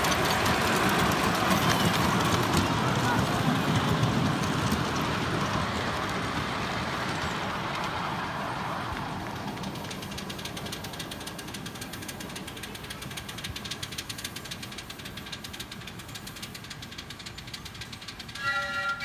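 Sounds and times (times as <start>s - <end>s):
miniature steam train running: 0.0s - 19.0s
even beat of wheel clicks: 8.9s - 18.4s.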